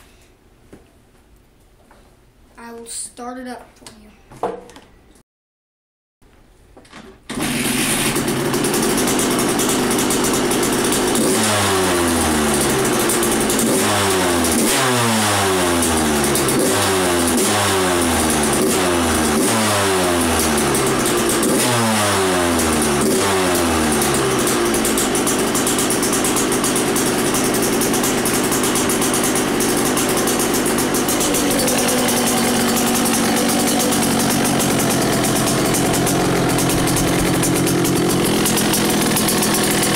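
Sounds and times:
two-stroke motorcycle engine revving: 7.3s - 39.9s.

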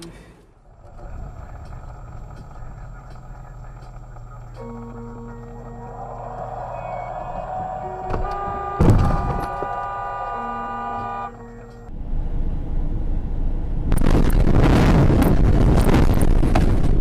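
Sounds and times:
road and wind noise from car: 0.0s - 17.0s
car horn held: 4.6s - 11.9s
loud thump: 7.6s - 9.7s.

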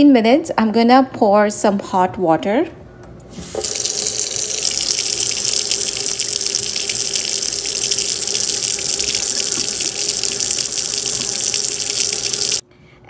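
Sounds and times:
faucet running into a steel sink: 3.4s - 12.6s.

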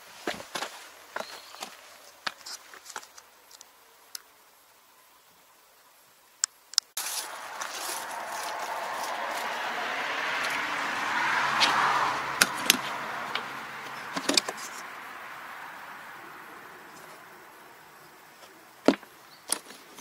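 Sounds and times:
rushing noise: 7.0s - 18.1s.

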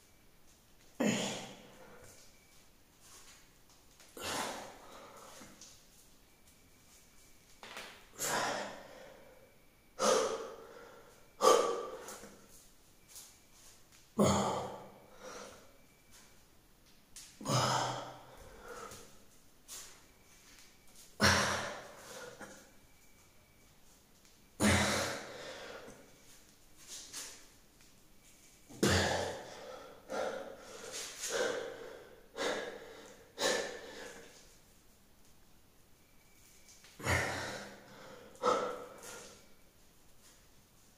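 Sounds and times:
man breathing heavily: 4.0s - 5.7s, 8.2s - 12.6s, 14.2s - 15.9s, 17.4s - 19.3s, 21.2s - 22.9s, 24.6s - 26.3s, 28.7s - 34.6s, 37.0s - 39.6s.

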